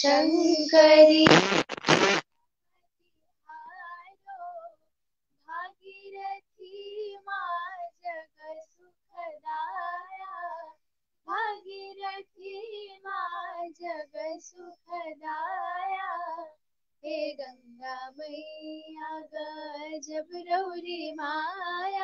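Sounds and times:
girls singing a hymn: 9.2 - 10.7, 11.3 - 16.5, 17.1 - 22.0.

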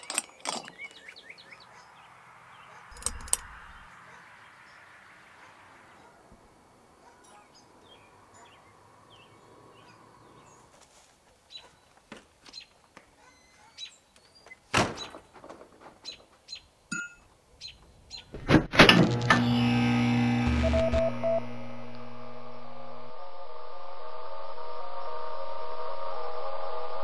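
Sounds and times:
birds chirping: 0.0 - 6.3, 7.0 - 10.8, 11.4 - 18.4
steady electric hum: 18.9 - 27.0.

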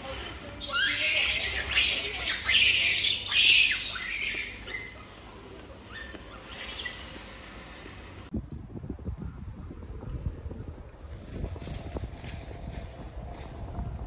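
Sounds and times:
infant monkey squealing: 0.0 - 5.2, 5.9 - 7.1.

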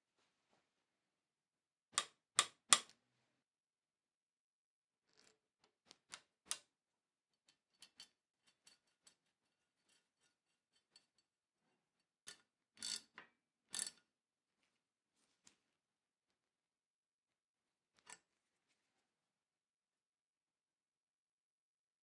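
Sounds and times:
small metallic clicks: 12.3 - 14.0.

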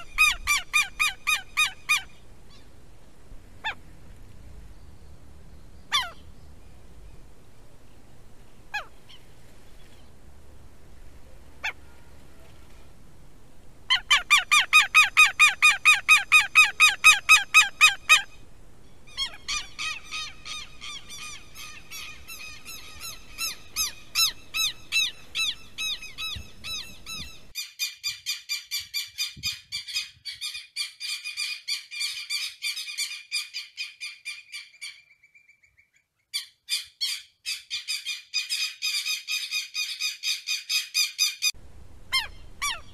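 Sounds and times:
lapwing calling: 0.0 - 2.8, 3.6 - 10.2, 10.9 - 13.0, 13.8 - 27.6, 34.0 - 42.9.

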